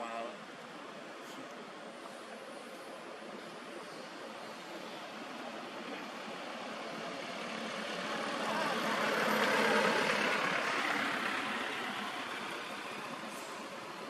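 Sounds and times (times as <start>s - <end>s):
vehicle passing on road: 3.9s - 14.0s.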